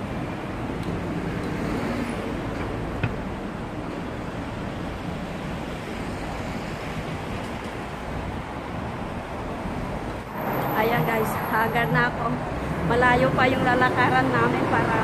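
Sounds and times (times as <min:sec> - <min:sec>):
street traffic hum: 0:00.0 - 0:15.0.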